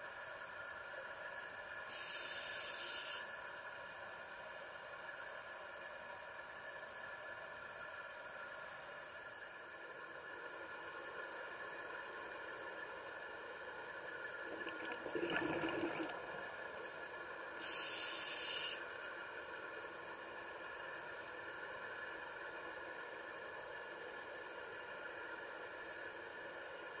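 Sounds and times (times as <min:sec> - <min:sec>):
steady underwater hiss: 0:00.0 - 0:27.0
regulator inhale hiss: 0:01.9 - 0:03.3, 0:17.6 - 0:18.9
bubbly diver exhale: 0:14.5 - 0:16.7.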